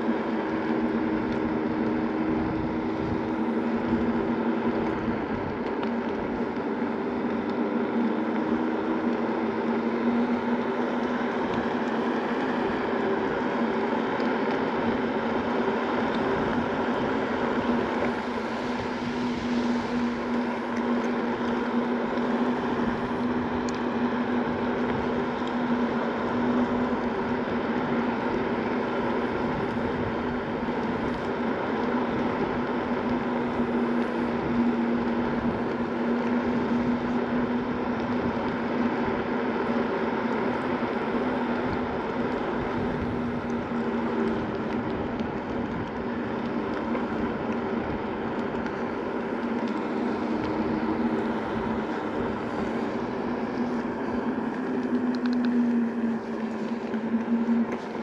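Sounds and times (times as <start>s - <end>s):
electric motor hum: 0.0s - 58.0s
tyres rushing on asphalt: 0.0s - 58.0s.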